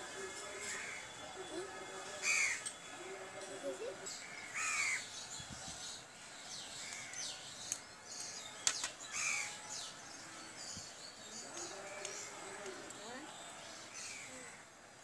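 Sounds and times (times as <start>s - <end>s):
crows cawing: 2.2s - 2.6s, 4.2s - 5.0s
small birds chirping: 4.0s - 14.6s.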